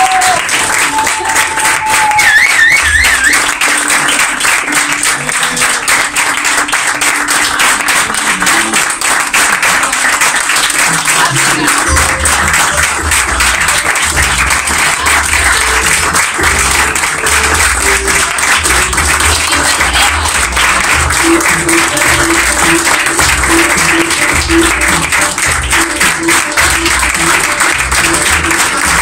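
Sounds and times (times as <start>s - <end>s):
audience applauding: 0.0s - 29.0s
background music with bass line: 11.1s - 29.0s.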